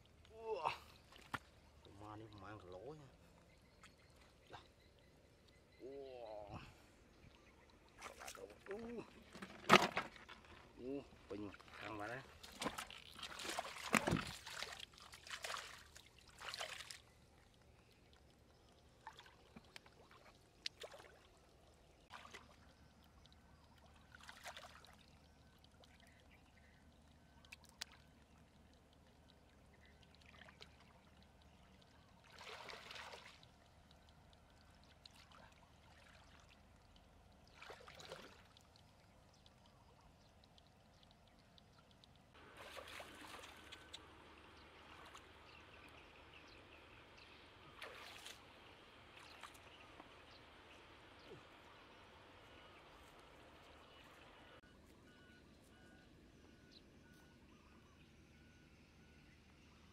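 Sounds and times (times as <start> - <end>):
water trickling: 0.0 - 56.7
wading through muddy water: 5.8 - 40.8, 41.6 - 46.2, 47.4 - 57.4.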